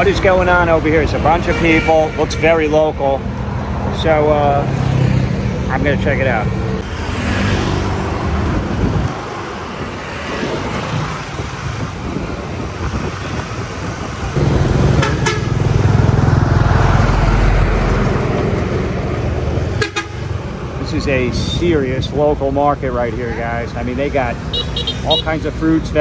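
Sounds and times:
motorbike engines: 0:00.0 - 0:26.0
road traffic: 0:00.0 - 0:26.0
deep engine rumble: 0:11.2 - 0:22.9.

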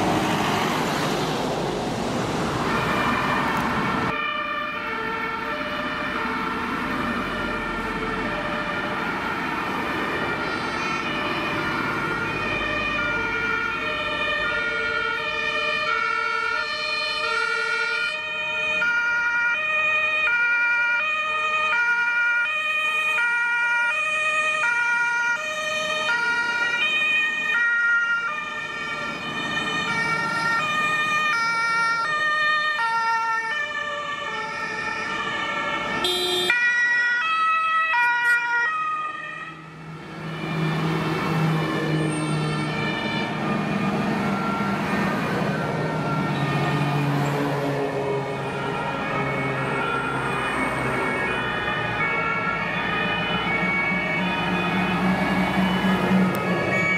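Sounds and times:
passing vehicle engines and tyres: 0:00.0 - 0:56.9
two-tone emergency sirens: 0:00.0 - 0:56.9.

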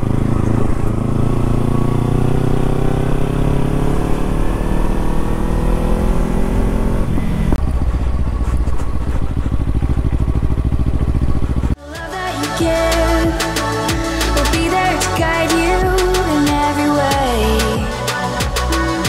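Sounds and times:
motorcycle engine accelerating: 0:00.0 - 0:11.8.

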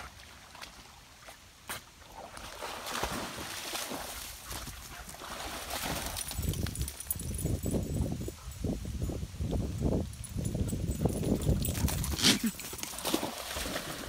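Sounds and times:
water splashing from swimming dog: 0:00.0 - 0:07.1, 0:11.8 - 0:14.0.

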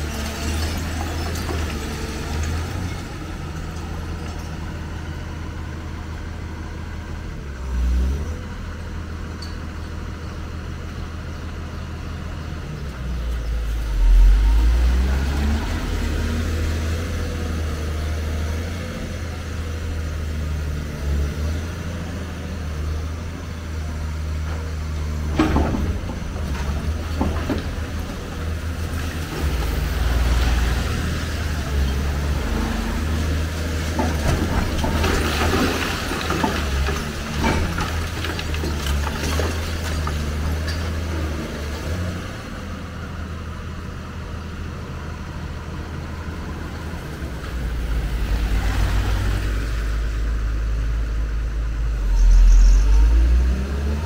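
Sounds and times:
rubble crashing down: 0:00.0 - 0:04.8, 0:25.1 - 0:30.9, 0:33.0 - 0:41.3
crumbling concrete and debris: 0:00.0 - 0:05.8, 0:22.6 - 0:42.5
excavator diesel rumble: 0:00.0 - 0:54.0.

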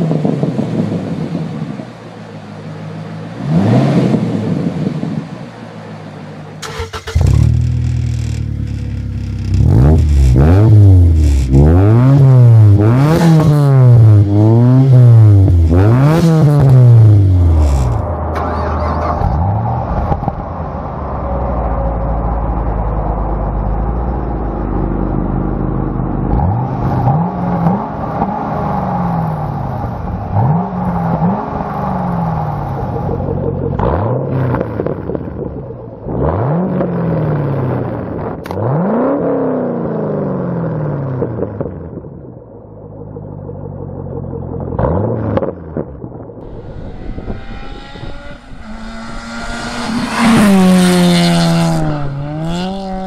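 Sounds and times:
car engine revving: 0:00.0 - 0:42.2, 0:42.8 - 0:53.0
car engine idling: 0:01.1 - 0:03.4, 0:04.9 - 0:11.5, 0:30.9 - 0:36.1, 0:42.3 - 0:44.8.

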